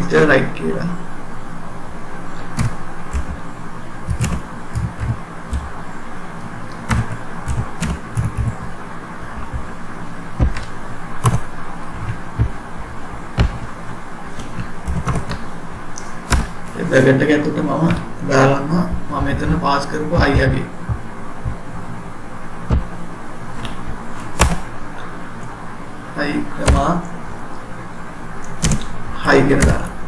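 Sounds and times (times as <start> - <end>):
steady background hum: 0.0 - 30.0
keyboard key clicks: 2.5 - 3.4, 4.1 - 5.7, 6.8 - 8.7, 10.4 - 12.6, 16.3 - 16.6, 26.6 - 26.8, 28.5 - 29.0.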